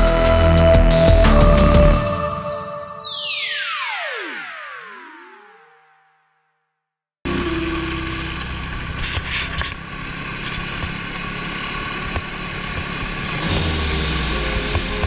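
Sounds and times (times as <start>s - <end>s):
thin steady whine: 7.3s - 10.6s
snowmobile engine running: 7.3s - 15.0s.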